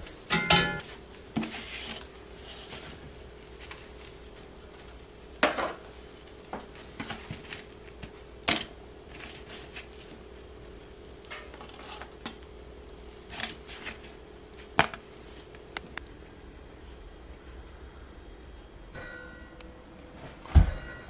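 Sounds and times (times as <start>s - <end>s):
steady low hum: 0.0s - 21.0s
metal tongs and paper plates clattering: 0.1s - 3.0s, 11.2s - 12.4s.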